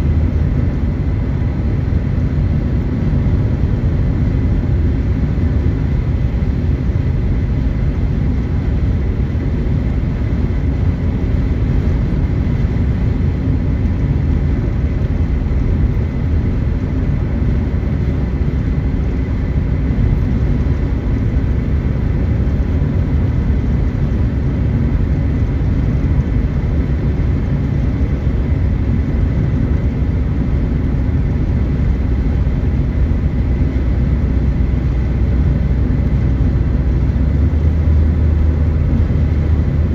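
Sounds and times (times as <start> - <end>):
road and engine noise in car: 0.0 - 39.9.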